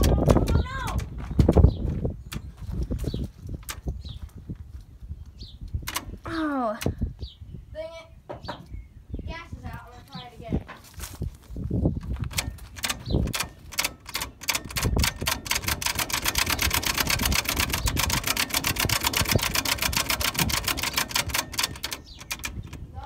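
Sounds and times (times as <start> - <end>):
truck engine cranking on starter: 12.4 - 22.8.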